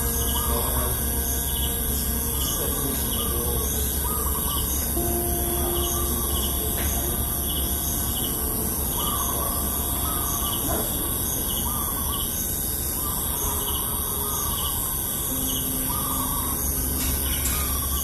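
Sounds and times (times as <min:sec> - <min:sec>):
low rumble: 0:00.0 - 0:11.7
birds chirping and calling: 0:00.0 - 0:18.0
steady high hiss: 0:00.0 - 0:18.0.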